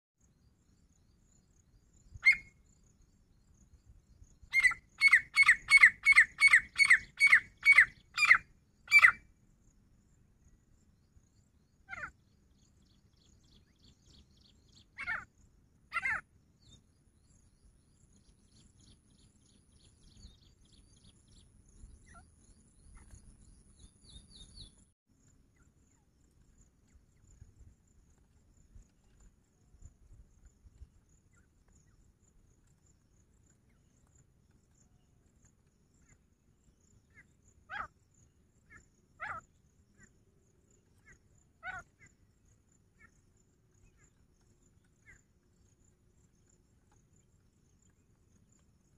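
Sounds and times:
francolin calling: 2.0 - 2.7, 4.4 - 9.3, 11.8 - 12.2, 13.2 - 16.8, 36.8 - 40.2, 40.8 - 45.8.

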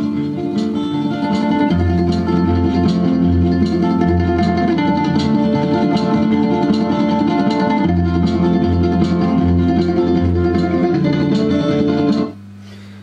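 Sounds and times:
guitar music through amplifier: 0.0 - 13.0
low mains hum: 0.0 - 13.0.

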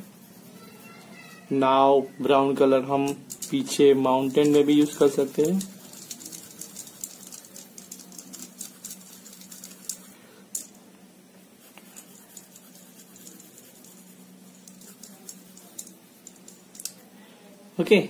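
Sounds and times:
pencil scratching on paper: 0.0 - 1.0, 3.9 - 10.2, 11.6 - 16.4.

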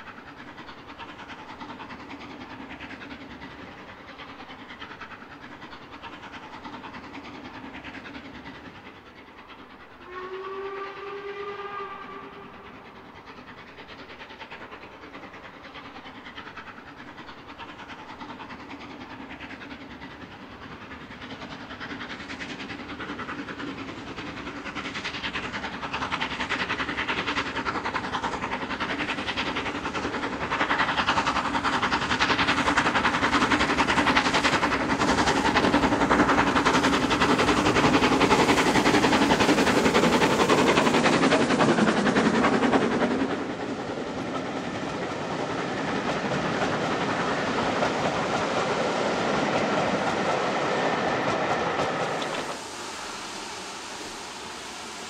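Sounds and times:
steam locomotive running: 0.0 - 55.0
steam whistle blast: 10.0 - 12.6.

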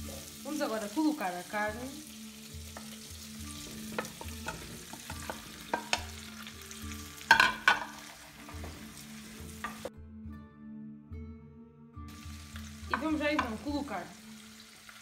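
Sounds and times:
meat and onion sizzling in oil: 0.0 - 9.9, 12.1 - 15.0
plate and spoon knocking pot: 3.9 - 6.2, 7.3 - 8.0.

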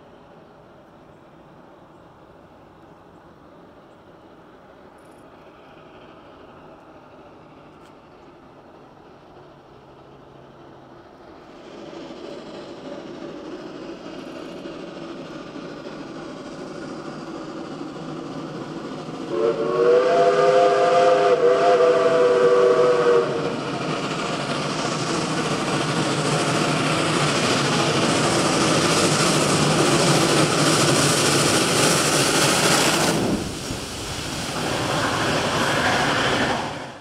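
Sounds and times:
steam locomotive exhaust rush: 0.0 - 37.0
steam locomotive chime whistle: 19.3 - 23.6.

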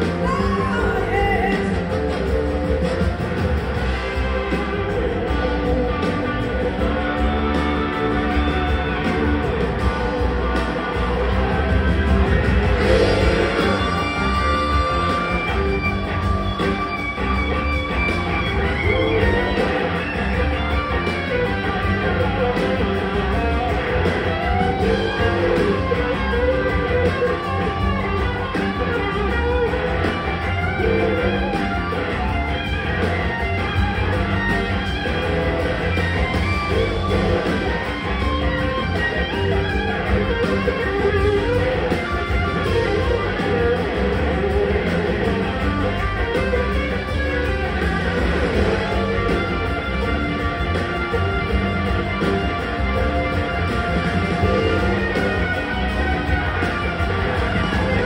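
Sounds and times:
bass: 0.0 - 58.0
drums: 0.0 - 58.0
electric guitar lead: 0.0 - 58.0
organ: 0.0 - 58.0.

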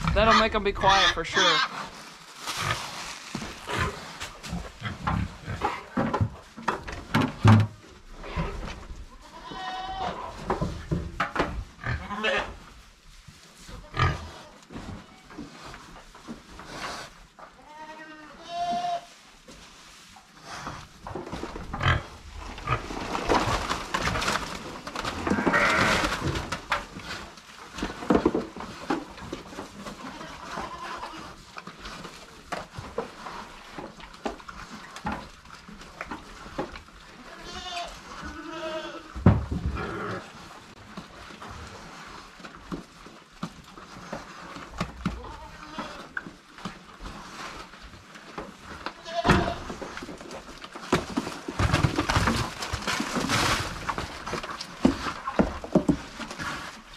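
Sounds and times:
goats bleating: 9.2 - 10.2, 17.6 - 19.1, 25.2 - 26.0, 37.3 - 39.1, 48.9 - 49.7
pigs grunting: 13.8 - 14.6, 21.6 - 23.7, 39.6 - 40.4.

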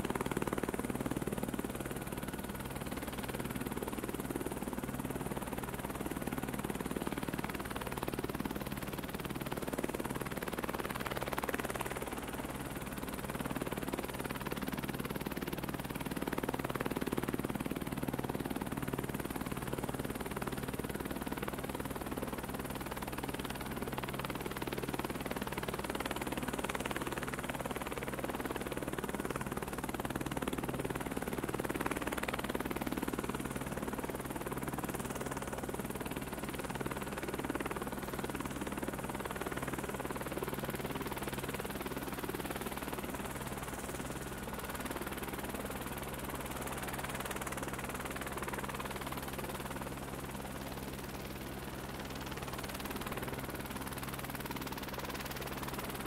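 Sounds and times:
helicopter rotor and motor drone: 0.0 - 56.0.

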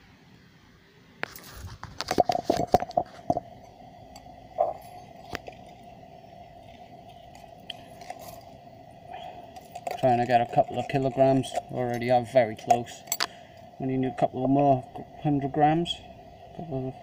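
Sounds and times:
faint steady tone: 2.3 - 17.0.

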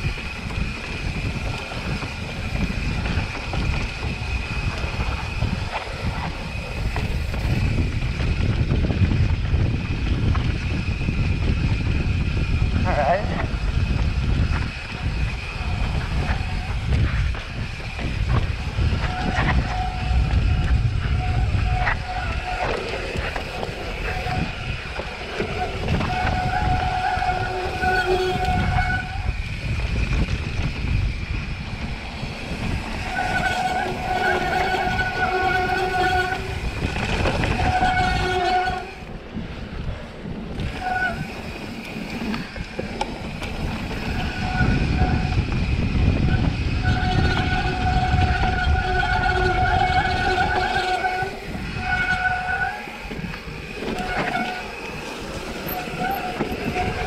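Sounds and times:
bike tyre rumble: 0.0 - 57.0
wind: 0.0 - 57.0
disc brakes squealing: 14.3 - 29.6, 32.4 - 39.1, 46.2 - 57.0.

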